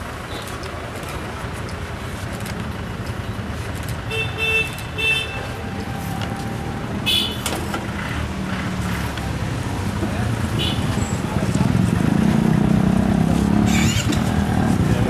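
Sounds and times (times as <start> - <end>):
street traffic rumbling: 0.0 - 15.0
vehicle horns honking: 4.1 - 6.1, 7.0 - 7.6, 10.5 - 11.2, 13.6 - 14.2.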